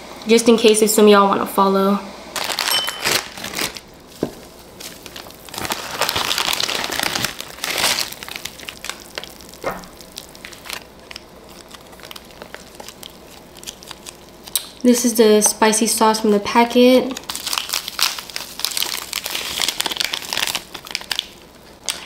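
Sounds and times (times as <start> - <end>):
plastic wrapper crinkling: 2.4 - 14.8, 17.0 - 22.0
seasoning packets crackling: 2.4 - 14.9, 16.2 - 22.0.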